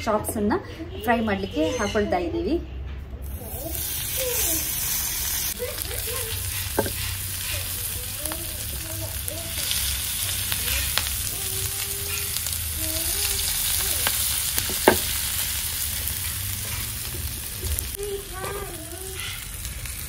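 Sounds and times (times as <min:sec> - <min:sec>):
oil popping: 0:03.2 - 0:18.4
meat sizzling in hot oil: 0:03.2 - 0:20.0.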